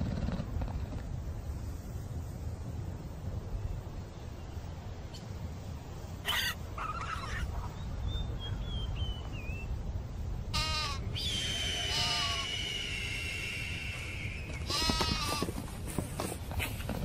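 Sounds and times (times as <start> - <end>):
low wind rumble: 0.0 - 17.0
chamois bleating: 10.5 - 11.1, 11.7 - 12.5, 14.5 - 15.6
thin high whistling: 11.1 - 14.7.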